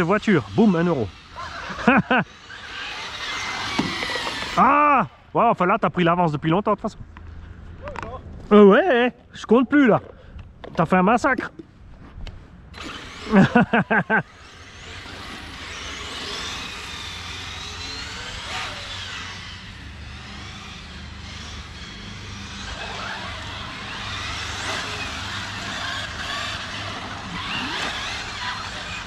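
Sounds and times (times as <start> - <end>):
electric rc car motors whining: 0.0 - 6.1, 12.7 - 29.0.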